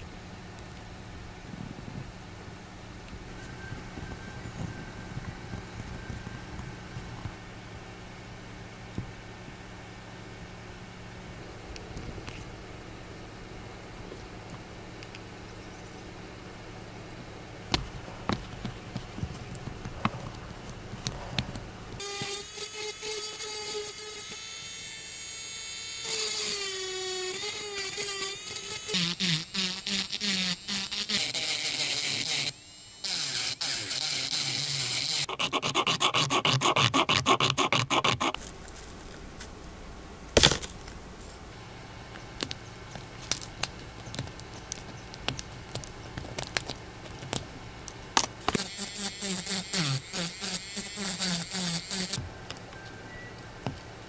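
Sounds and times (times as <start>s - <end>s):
rotary tool whining: 3.0s - 7.5s, 17.6s - 38.4s, 42.6s - 54.0s
grinding plastic: 17.6s - 22.4s, 27.4s - 39.2s, 42.1s - 54.0s
scraping and clicks: 42.1s - 48.6s.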